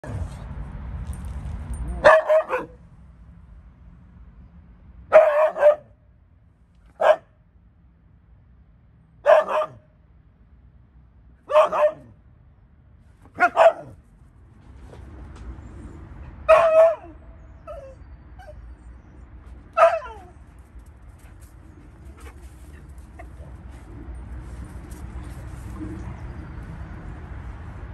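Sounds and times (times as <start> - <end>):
dog barking: 2.0 - 2.8, 5.1 - 5.9, 7.0 - 7.3, 9.2 - 9.8, 11.5 - 12.2, 13.4 - 14.0, 16.5 - 18.0, 19.8 - 20.3.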